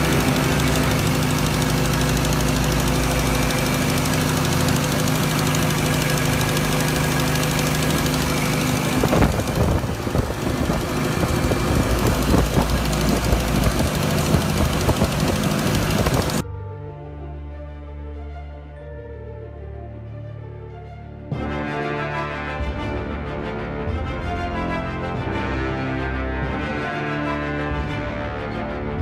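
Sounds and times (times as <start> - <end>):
tractor engine humming: 0.0 - 16.4.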